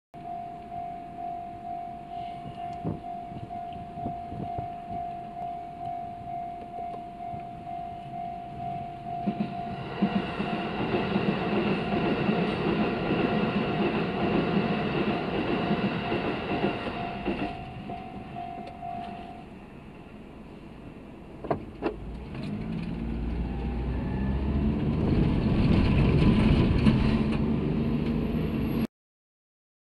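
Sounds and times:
level crossing warning bell: 0:00.2 - 0:19.9
train wheels clacking on rails: 0:08.6 - 0:19.4
car engine pulling away: 0:21.6 - 0:28.9.

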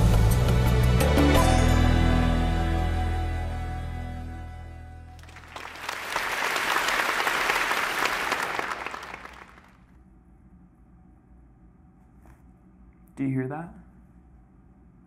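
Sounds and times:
crowd applauding: 0:05.2 - 0:09.8.

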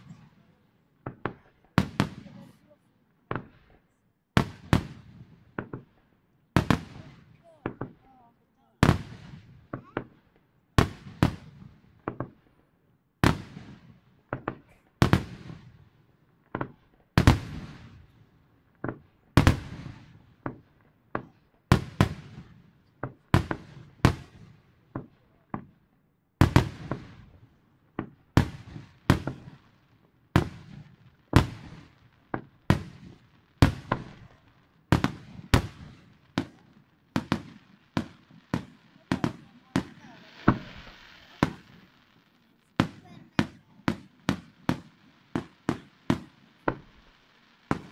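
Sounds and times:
firework shells bursting: 0:31.3 - 0:47.9.

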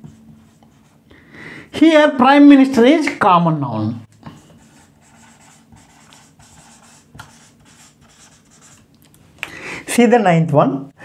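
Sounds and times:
marker scratching on whiteboard: 0:00.0 - 0:01.0, 0:04.6 - 0:08.9.

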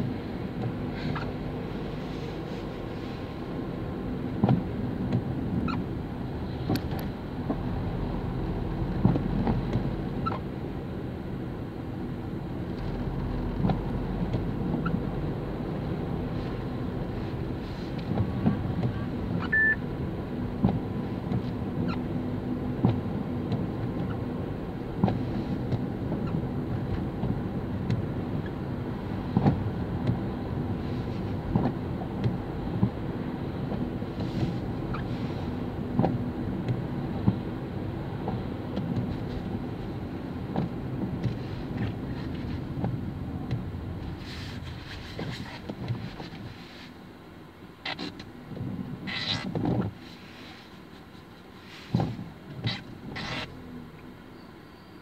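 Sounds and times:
car road and engine noise: 0:00.0 - 0:55.0
short beep: 0:19.4 - 0:19.8.

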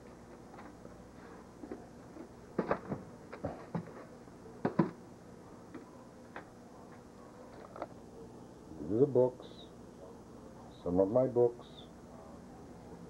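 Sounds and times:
books knocking in a box: 0:02.6 - 0:04.0, 0:04.6 - 0:05.0.

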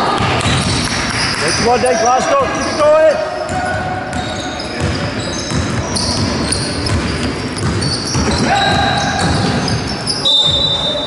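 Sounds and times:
voices calling in a hall: 0:00.0 - 0:11.0
sneakers squeaking: 0:00.1 - 0:11.0
basketball dribbling on wooden floor: 0:03.5 - 0:09.9.

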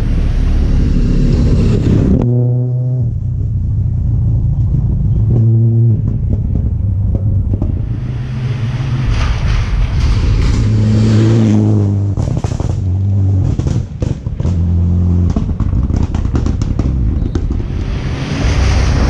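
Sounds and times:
exhaust crackles: 0:03.1 - 0:19.0
rally car engine revving: 0:04.4 - 0:19.0.

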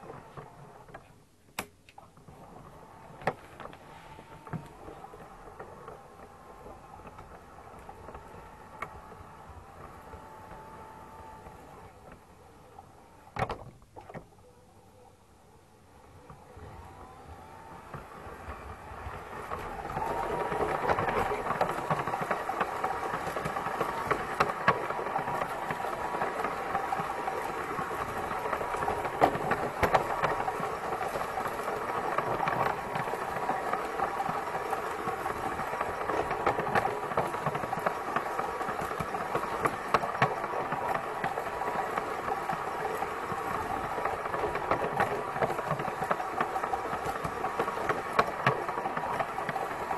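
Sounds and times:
wheels clicking over rail joints: 0:00.0 - 0:49.9
model train motor whirring: 0:02.3 - 0:14.2, 0:15.6 - 0:49.9.

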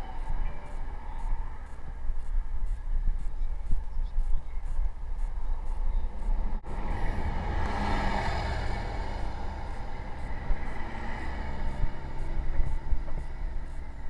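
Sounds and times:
wind buffeting microphone: 0:00.0 - 0:14.0
motor vehicle passing: 0:04.6 - 0:14.0.

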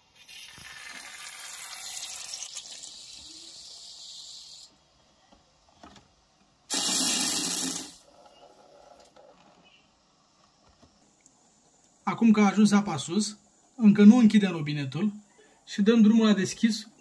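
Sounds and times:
air hissing from valve: 0:00.2 - 0:04.8, 0:06.7 - 0:08.0
air and water sputtering: 0:06.7 - 0:08.0.

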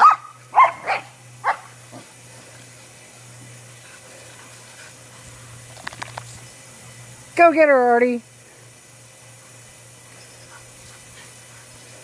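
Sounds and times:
dogs barking: 0:00.0 - 0:02.1
steady low hum: 0:00.0 - 0:12.0.

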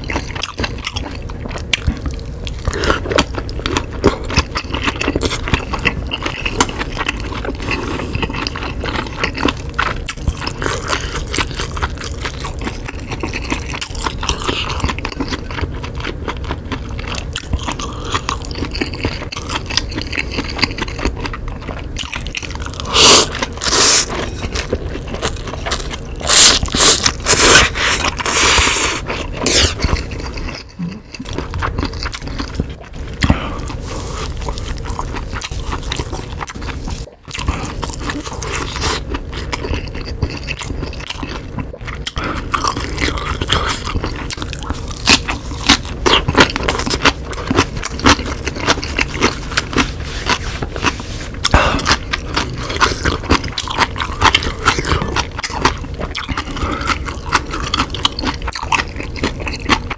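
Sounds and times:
chewing and crunching: 0:00.0 - 0:59.9
slurping noodles: 0:26.2 - 0:30.0, 0:48.4 - 0:53.2.

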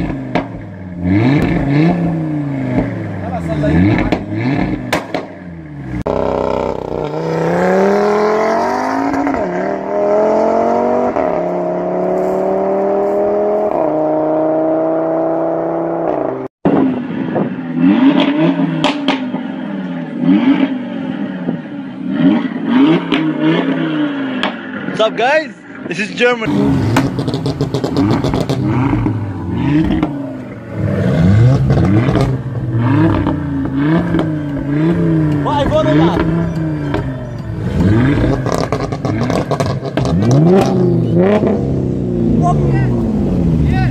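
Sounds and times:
exhaust cracks: 0:00.0 - 0:07.8, 0:22.4 - 0:41.7
car engine revving: 0:00.0 - 0:43.9.

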